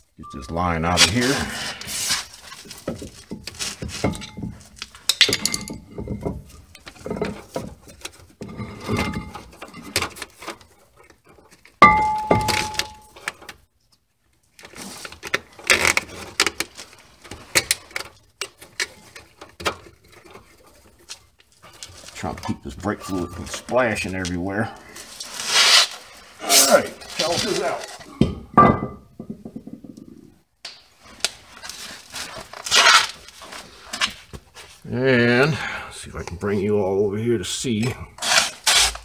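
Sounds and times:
metal fittings and tools clinking: 0.2s - 13.4s, 17.5s - 24.3s
sharp metallic clank: 11.8s - 13.2s.

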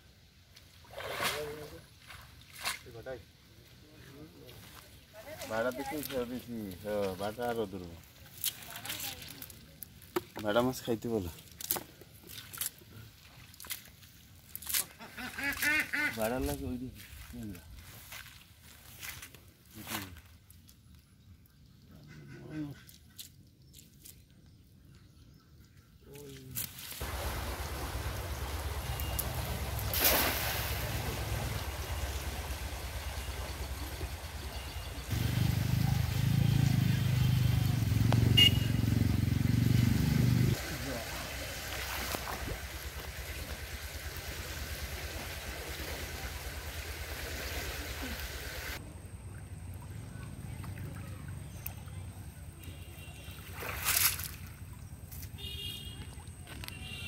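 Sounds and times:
net splashing into water: 0.8s - 2.9s, 26.6s - 34.3s, 40.6s - 48.1s, 53.2s - 54.6s
motor engine running: 27.0s - 29.9s, 30.8s - 40.5s.

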